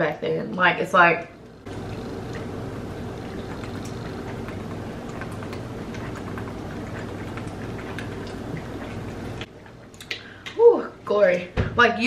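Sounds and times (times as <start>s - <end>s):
steady hum and hiss: 0.0s - 12.0s
swallowing clicks: 3.2s - 10.6s.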